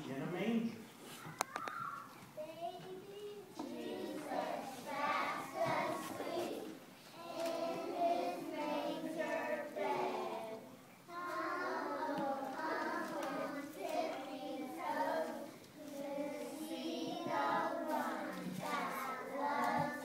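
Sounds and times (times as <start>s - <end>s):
children singing: 3.5s - 20.0s.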